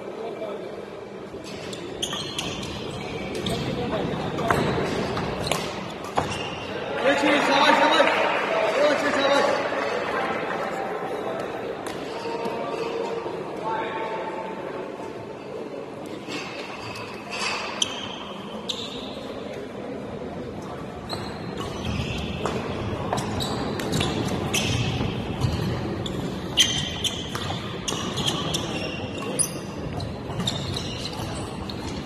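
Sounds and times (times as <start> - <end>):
shoes squeaking on court floor: 1.3 - 6.8, 16.3 - 19.6, 21.0 - 32.0.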